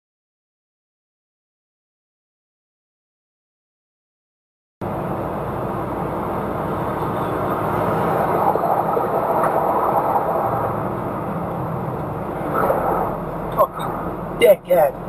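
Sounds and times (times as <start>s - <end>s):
lorry engine and road noise: 4.8s - 15.0s.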